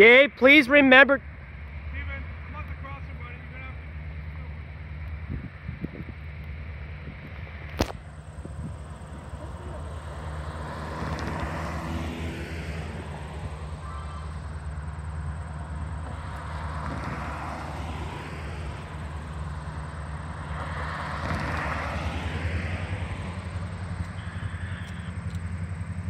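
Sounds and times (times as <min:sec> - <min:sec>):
diesel locomotive engine idling: 0:00.0 - 0:10.6, 0:12.8 - 0:16.7, 0:18.0 - 0:20.8, 0:22.8 - 0:26.0.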